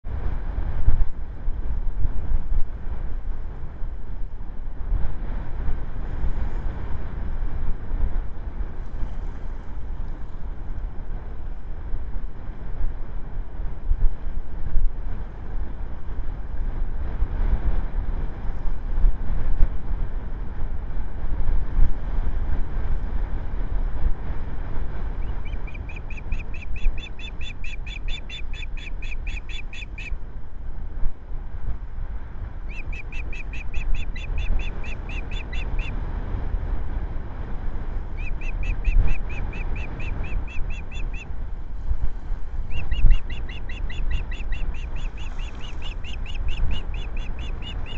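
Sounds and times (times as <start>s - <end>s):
wind rumbling on microphone: 0.0s - 47.9s
osprey calling: 25.2s - 30.2s, 32.7s - 36.0s, 38.1s - 41.3s, 42.6s - 47.9s.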